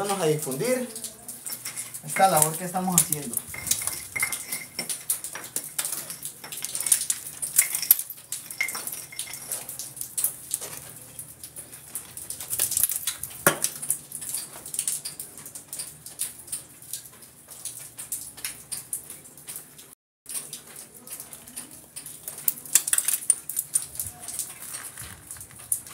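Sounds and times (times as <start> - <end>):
wall being chipped open: 0.0 - 15.2
rubble clattering: 1.3 - 11.0, 11.8 - 14.4, 22.0 - 25.9.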